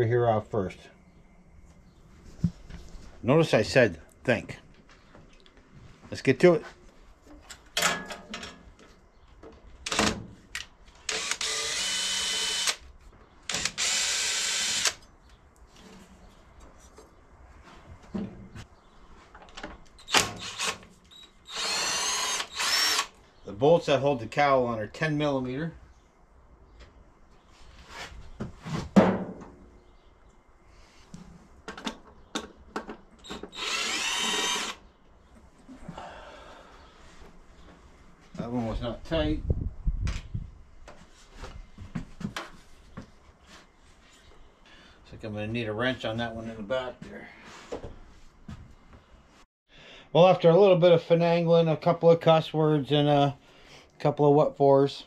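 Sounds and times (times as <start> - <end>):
cordless drill spinning out bolts: 11.1 - 12.8, 13.5 - 15.0, 20.0 - 23.2, 33.2 - 34.8.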